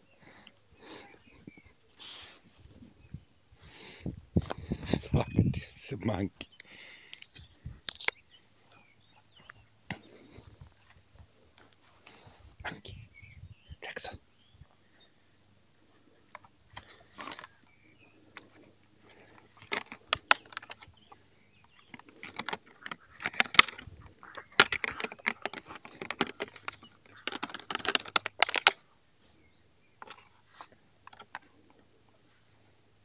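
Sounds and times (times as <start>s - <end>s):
plastic bag crinkling: 21.8s - 28.8s.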